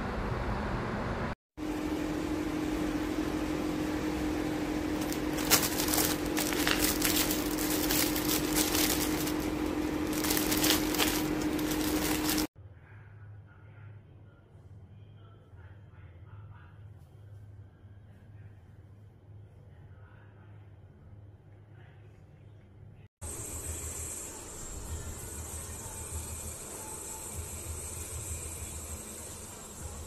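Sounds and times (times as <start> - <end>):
steady hum: 1.6 - 12.5
plastic film crinkling: 4.9 - 12.5.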